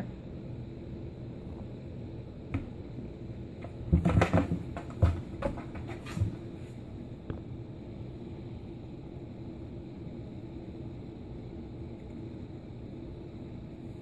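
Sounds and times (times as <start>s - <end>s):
kitten scratching cardboard box: 3.6s - 6.5s.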